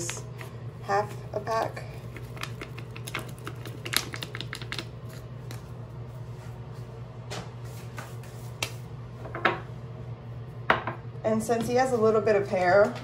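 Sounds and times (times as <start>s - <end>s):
packet crinkling: 2.0s - 5.6s.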